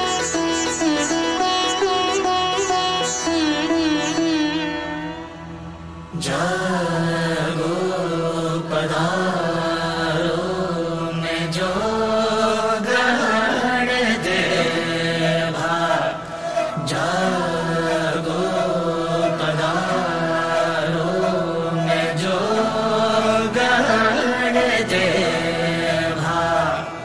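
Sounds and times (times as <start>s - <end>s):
voices chanting: 6.2s - 27.0s.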